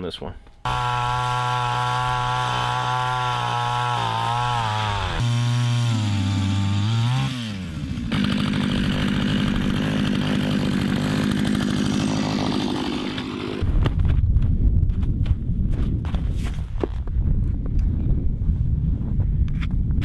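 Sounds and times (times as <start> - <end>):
small two-stroke engine running: 0.6 - 13.6.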